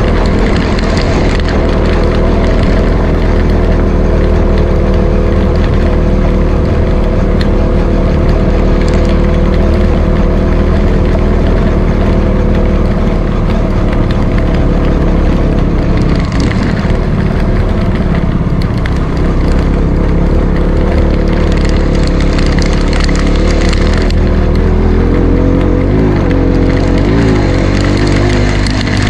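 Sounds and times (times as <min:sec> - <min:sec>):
motorcycle engine running: 0:00.0 - 0:29.0
road and wind noise: 0:00.0 - 0:29.0.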